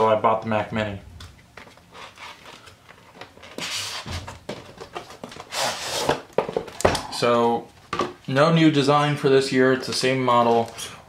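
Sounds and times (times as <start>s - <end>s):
cardboard rubbing on cardboard: 3.5s - 4.3s, 5.4s - 6.2s.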